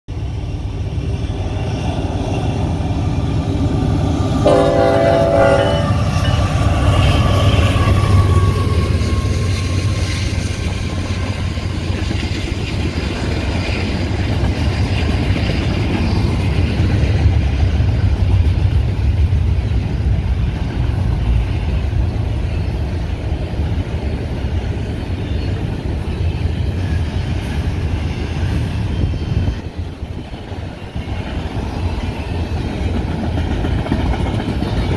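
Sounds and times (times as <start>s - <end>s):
freight train rumbling past: 0.1s - 34.9s
train horn blast: 4.4s - 9.8s.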